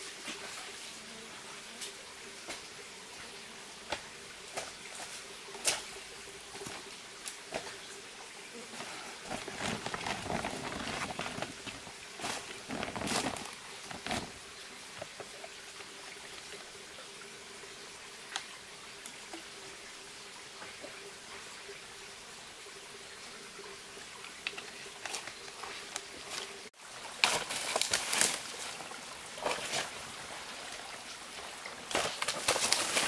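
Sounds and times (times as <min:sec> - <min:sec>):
plastic sack rustling: 0:09.2 - 0:14.4.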